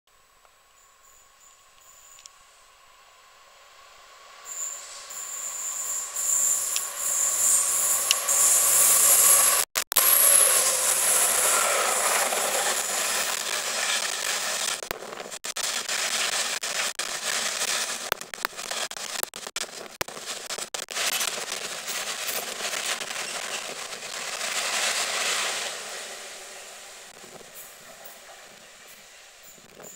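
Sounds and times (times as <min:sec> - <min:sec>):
thin high whine: 0:00.1 - 0:29.9
diesel locomotive engine: 0:01.1 - 0:15.4, 0:21.0 - 0:29.9.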